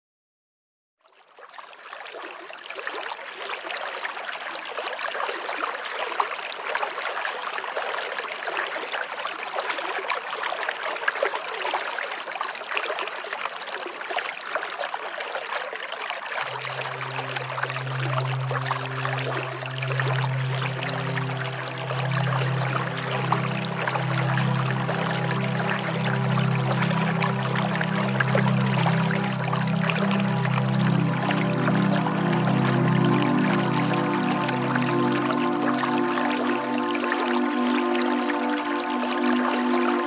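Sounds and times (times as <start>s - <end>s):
water trickling: 1.2s - 40.0s
low musical drone: 16.4s - 40.0s.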